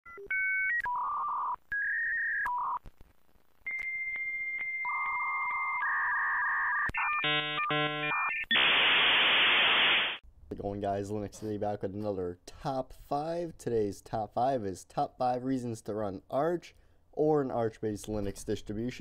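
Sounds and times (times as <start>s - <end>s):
modem dialing tones: 3.7s - 10.2s.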